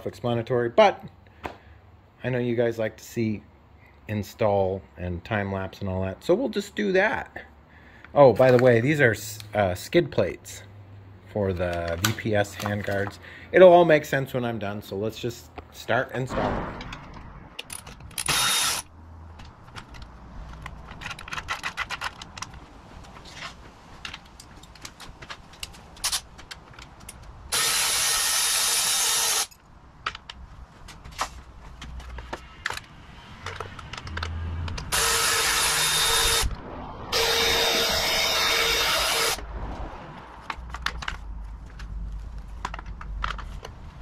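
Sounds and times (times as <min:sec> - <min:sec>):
hardware clicking and rattling: 0:16.8 - 0:18.4, 0:19.3 - 0:23.2
cordless screwdriver running: 0:18.2 - 0:18.9, 0:27.5 - 0:29.5, 0:34.9 - 0:36.5, 0:37.1 - 0:39.4.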